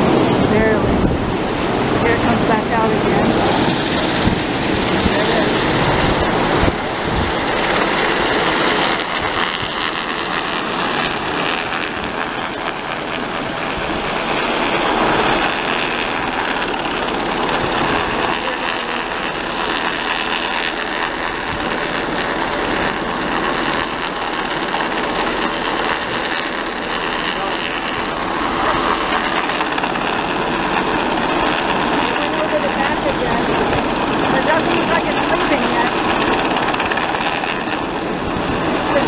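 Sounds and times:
helicopter hovering: 0.0s - 39.0s.

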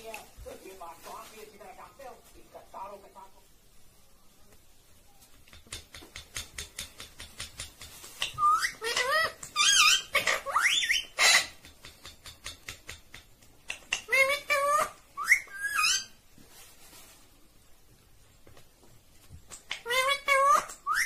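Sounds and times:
parakeet whistled calls: 8.2s - 11.5s, 14.6s - 16.2s, 20.3s - 21.0s.

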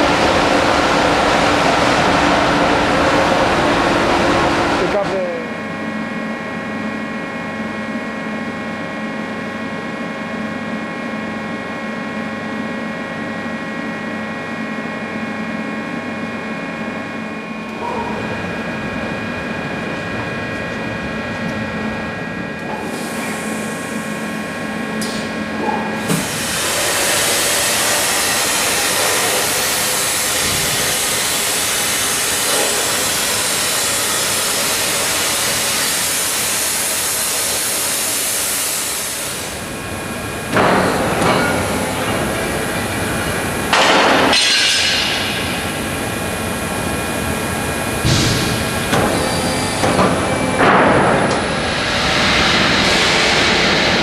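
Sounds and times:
machine humming and whining: 0.0s - 54.0s
plasma torch cutting hiss: 26.1s - 39.5s.

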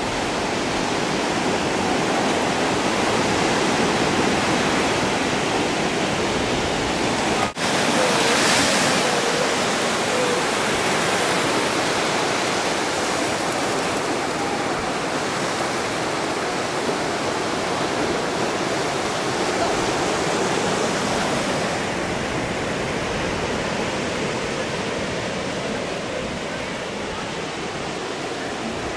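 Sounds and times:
ocean surf breaking: 0.0s - 28.9s.

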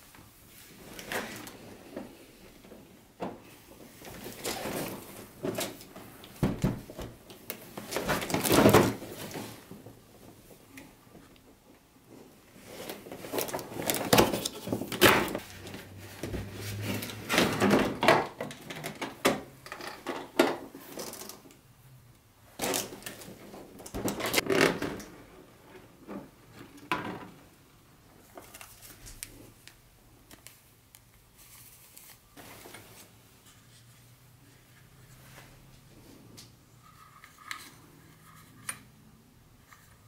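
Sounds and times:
packaging rustling and scraping: 7.7s - 9.8s, 12.5s - 18.0s.

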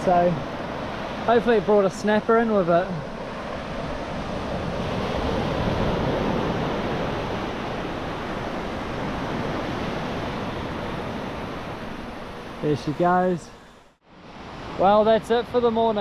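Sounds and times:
ocean surf breaking on beach: 0.0s - 15.8s
wind on microphone: 2.9s - 13.8s.

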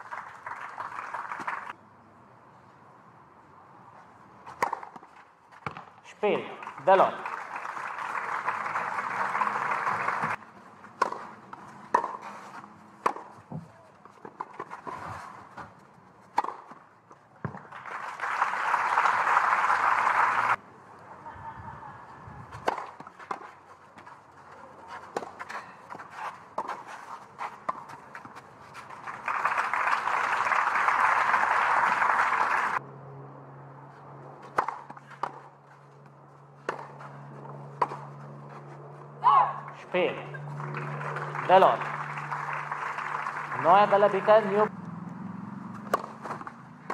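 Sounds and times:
crowd applause: 0.0s - 1.7s, 6.6s - 10.4s, 17.7s - 20.6s, 28.8s - 32.8s, 40.4s - 44.7s
tennis ball struck by rackets: 4.5s - 6.6s, 10.2s - 15.0s, 16.3s - 16.8s, 22.5s - 23.6s, 34.4s - 35.5s, 36.6s - 37.0s, 37.8s - 38.1s, 45.7s - 46.9s.

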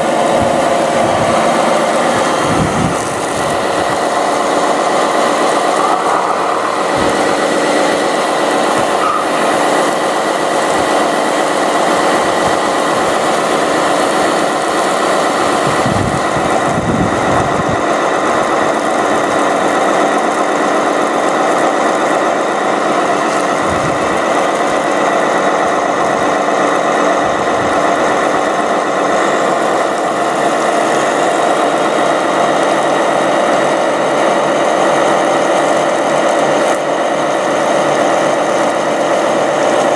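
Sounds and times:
toy truck motor hum and whine: 0.0s - 39.9s.

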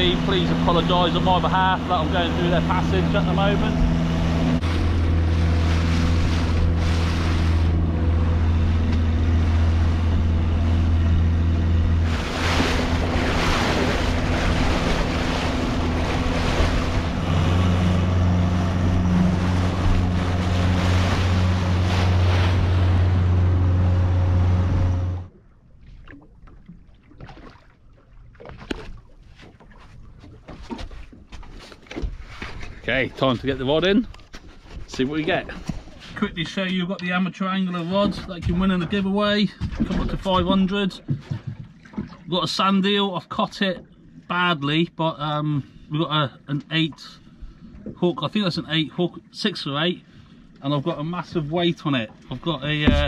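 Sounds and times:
outboard motor running: 0.0s - 36.4s, 50.0s - 53.0s
water lapping: 0.0s - 36.4s, 37.7s - 44.8s, 45.4s - 53.0s
wind: 0.0s - 53.0s
small knocks on boat: 39.5s - 42.2s, 52.6s - 53.0s.

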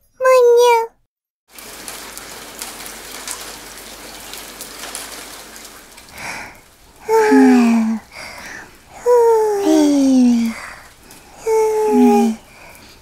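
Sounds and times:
cartoon voice falling in pitch: 0.2s - 0.9s
rain pattering: 1.5s - 13.0s.

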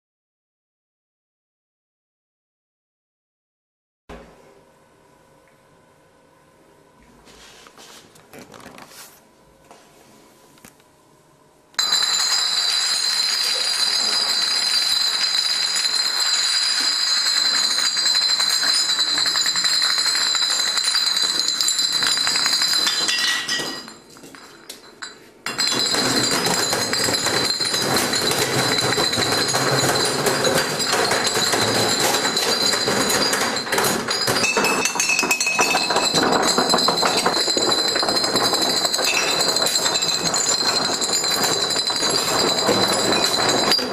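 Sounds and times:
glass bottles clinking and clattering: 11.8s - 43.9s.

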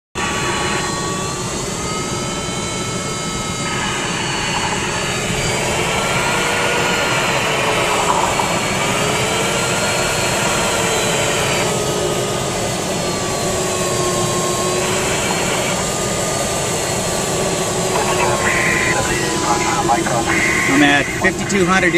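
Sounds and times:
variometer tone sliding in pitch: 3.4s - 11.7s.

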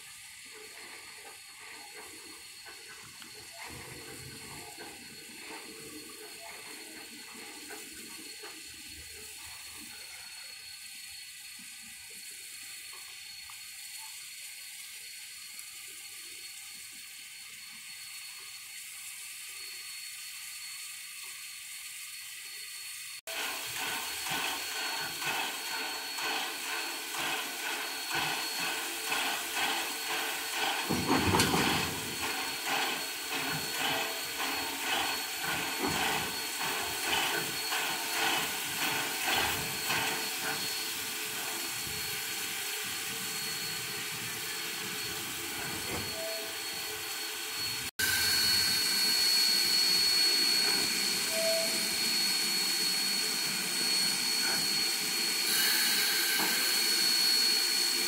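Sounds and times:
steam hiss: 0.0s - 58.0s
steam locomotive exhaust chuffs: 0.0s - 58.0s
thin high whine: 22.1s - 58.0s.

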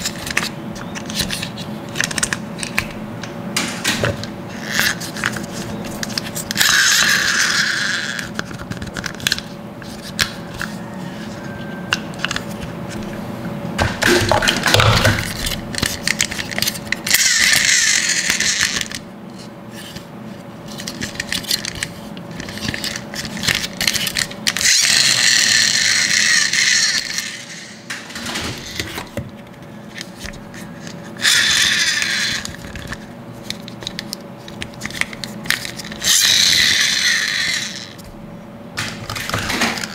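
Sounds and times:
plastic parts clicking and rattling: 0.0s - 3.0s, 20.7s - 38.1s, 38.8s - 39.9s
toy friction motor whirring: 4.5s - 13.0s, 15.2s - 20.0s, 20.7s - 27.8s, 30.0s - 38.1s.

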